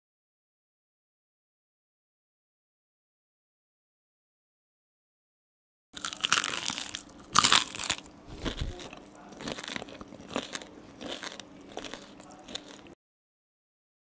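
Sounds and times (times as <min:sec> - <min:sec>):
fried prawn crunching: 0:06.0 - 0:13.0.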